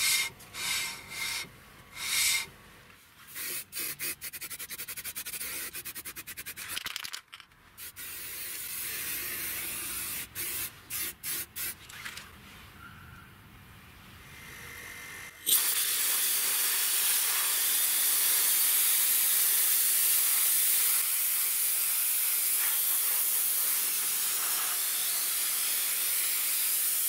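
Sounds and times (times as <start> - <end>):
spray paint bursts: 0.0 - 2.5, 3.3 - 7.2, 7.8 - 12.2, 15.4 - 27.0
spray can mixing ball rattle: 3.3 - 11.8.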